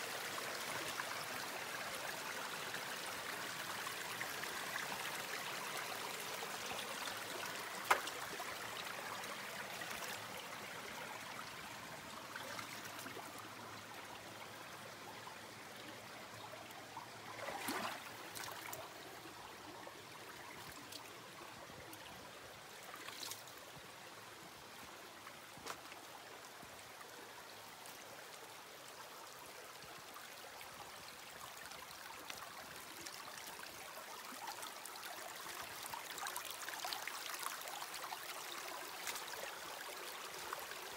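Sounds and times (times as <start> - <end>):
river water rushing: 17.2 - 19.0.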